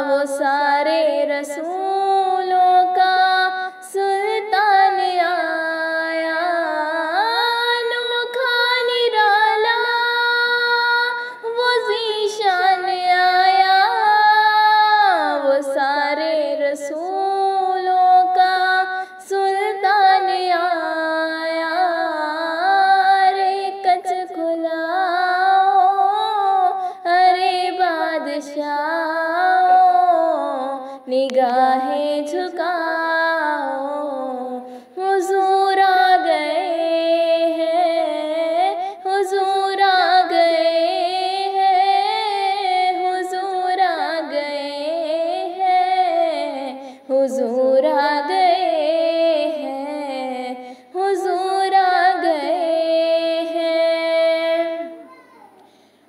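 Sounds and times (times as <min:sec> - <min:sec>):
woman singing devotional song: 0:00.0 - 0:56.0.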